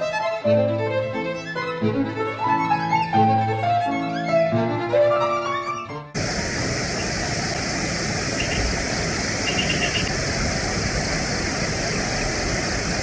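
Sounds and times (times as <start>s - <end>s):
steady outdoor rushing noise: 6.2s - 13.0s.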